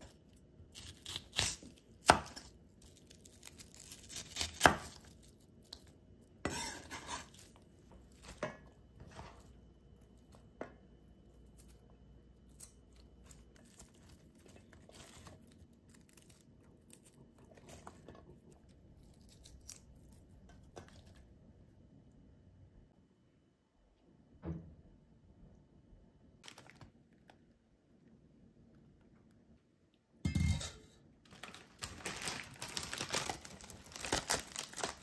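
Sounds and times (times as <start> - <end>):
knife slicing onion on wooden board: 6.4 - 7.4
onion moved in steel bowls: 6.4 - 10.6, 30.3 - 31.0.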